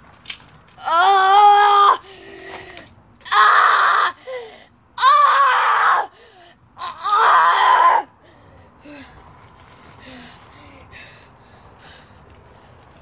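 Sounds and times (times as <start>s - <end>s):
boy screaming: 0.8s - 2.6s, 3.2s - 6.2s, 6.8s - 8.1s.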